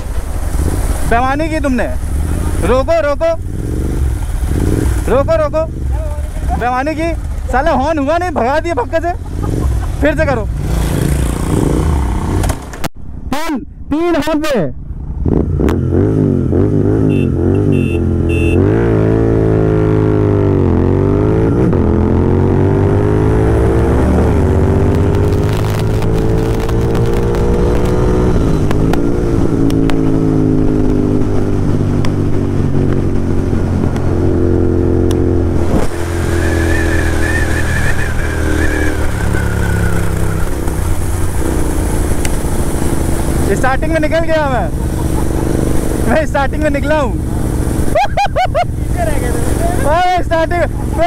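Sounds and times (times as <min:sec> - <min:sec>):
motorcycle engine accelerating: 0:00.0 - 0:12.9, 0:14.8 - 0:51.0
short horn beeps: 0:17.0 - 0:18.8
wind rushing over microphone: 0:20.4 - 0:43.6.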